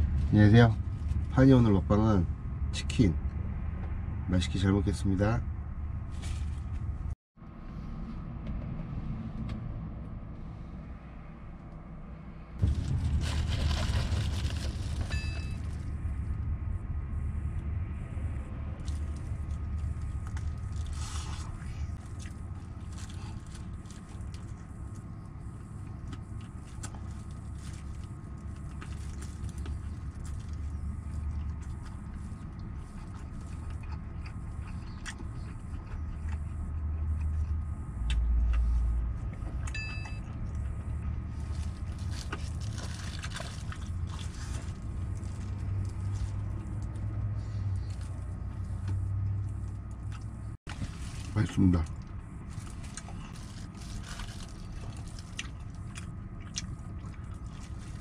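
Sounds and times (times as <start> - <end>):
plastic gloves rustling: 12.6 - 15.8, 52.4 - 55.3
fried chicken being chewed: 12.7 - 15.8, 18.8 - 58.0.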